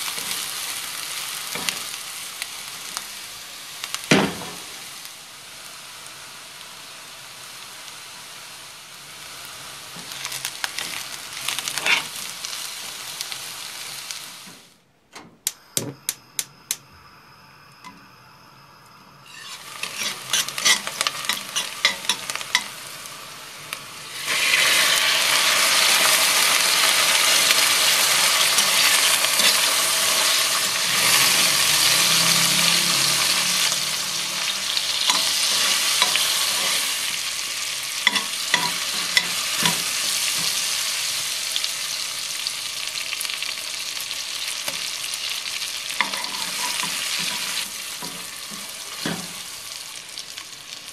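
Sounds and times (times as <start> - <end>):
onion sizzling in oil: 0.0 - 14.8, 15.6 - 50.9.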